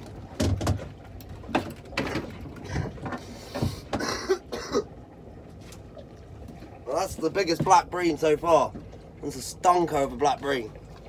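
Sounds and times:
fish thudding on boat: 0.0 - 4.7.

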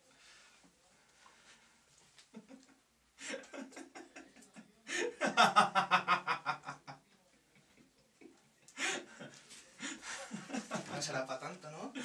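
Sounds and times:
man laughing hard: 3.2 - 6.9.

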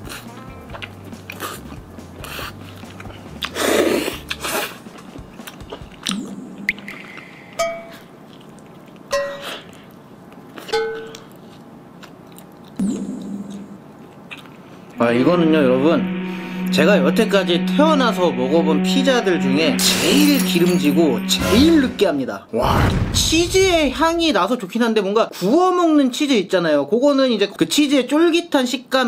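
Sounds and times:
background music with bass line: 0.0 - 4.5, 14.9 - 22.1
chewing and biting pizza: 0.0 - 6.1, 8.2 - 12.8
comic blip sound effects: 6.1 - 8.0, 12.8 - 13.8
loud mouth noise: 14.9 - 22.1.

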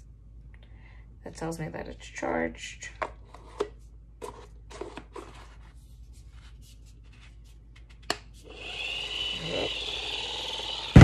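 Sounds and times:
small motor whirring: 8.4 - 11.0.

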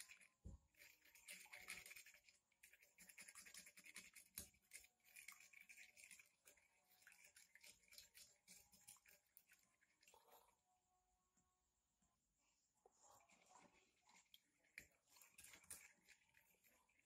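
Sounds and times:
spoon beating egg on plate: 0.0 - 9.6.

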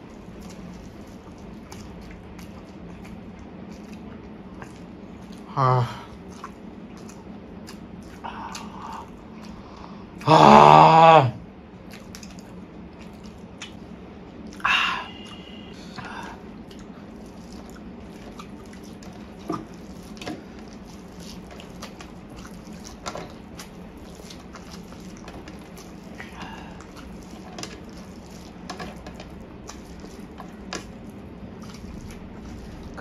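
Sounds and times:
wet chewing and lip smacks: 6.2 - 10.2, 11.8 - 15.6, 16.5 - 33.0.

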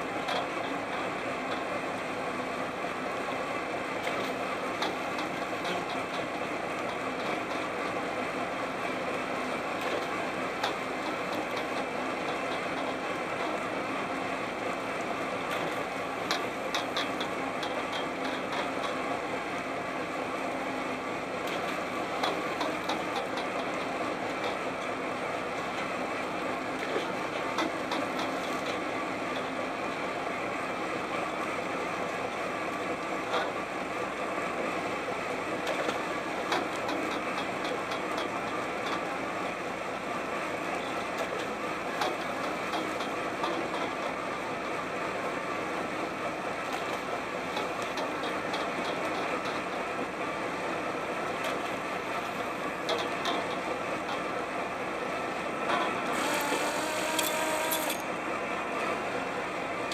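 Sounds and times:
boat engine and deck machinery: 0.0 - 59.9.

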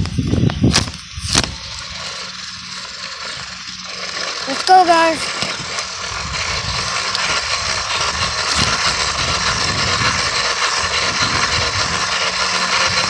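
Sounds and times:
wind rushing over microphone: 0.0 - 2.0, 5.4 - 13.0
tyres rolling on concrete: 1.8 - 13.0.

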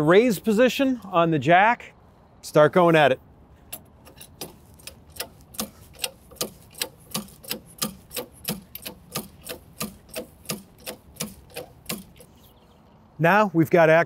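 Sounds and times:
hand-pumped jack clicking: 3.7 - 12.4.

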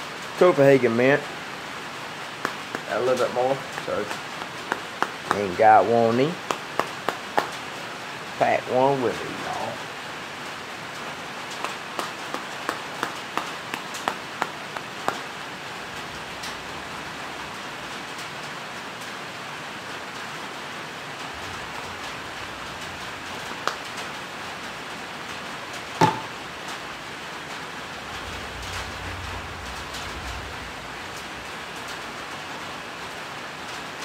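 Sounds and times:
rain on a metal roof: 0.0 - 34.0
loud knock: 26.0 - 26.4.

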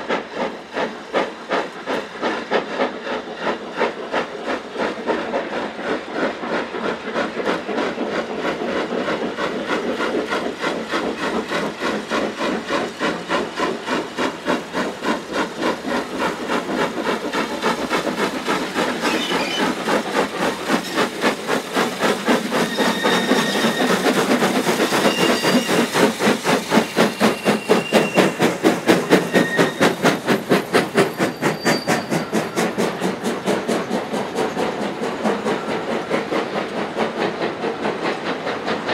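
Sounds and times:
hissing steam: 0.0 - 38.9
steam locomotive exhaust beats: 0.0 - 38.9
high squeals: 22.6 - 24.0, 25.0 - 26.0, 26.8 - 28.4, 29.1 - 30.0.

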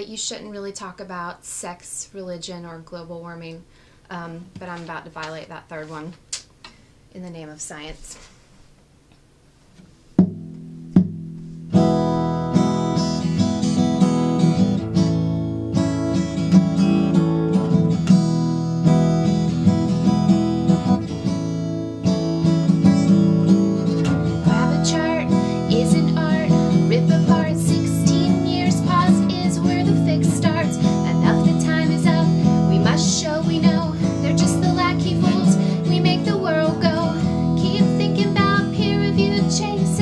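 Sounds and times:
acoustic guitar strumming: 10.2 - 40.0
woman singing: 24.4 - 40.0.

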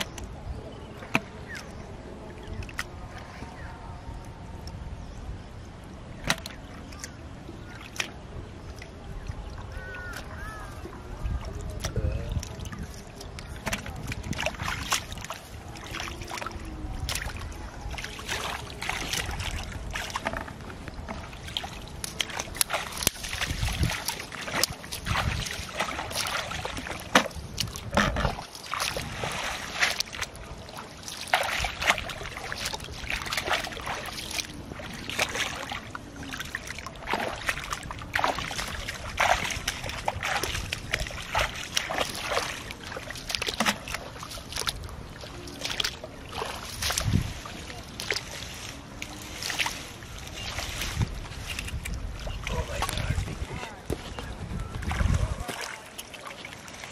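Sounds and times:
feet wading through shallow water: 0.0 - 56.9
hands digging in muddy water: 11.6 - 54.1.

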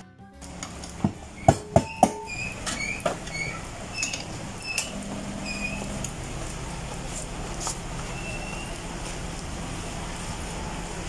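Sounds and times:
short high squeaks: 1.4 - 6.0, 8.1 - 8.8.

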